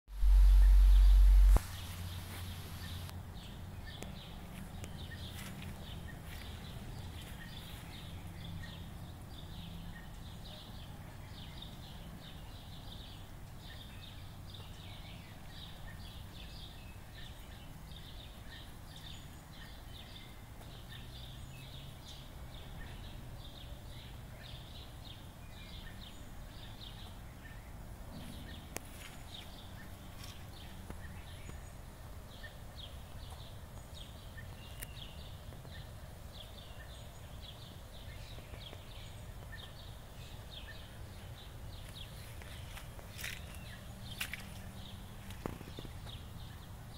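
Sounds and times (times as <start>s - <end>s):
faint low hum: 0.1s - 20.4s
small birds chirping: 0.1s - 46.9s.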